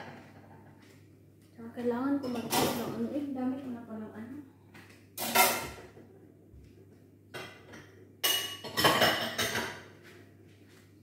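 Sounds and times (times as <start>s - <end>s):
dishes and pots clattering: 2.2s - 3.0s, 5.2s - 6.0s, 7.3s - 10.0s.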